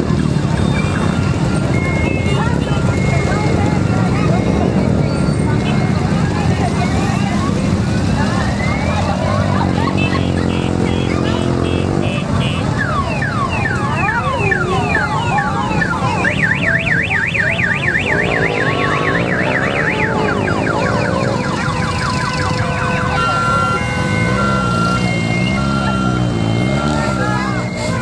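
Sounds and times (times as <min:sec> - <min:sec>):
engines running: 0:00.0 - 0:28.0
electronic siren wailing and yelping: 0:12.8 - 0:28.0.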